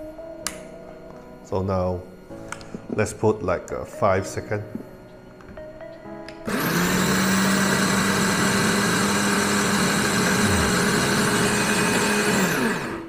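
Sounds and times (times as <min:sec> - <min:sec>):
coffee grinder motor whining: 0:06.4 - 0:13.0.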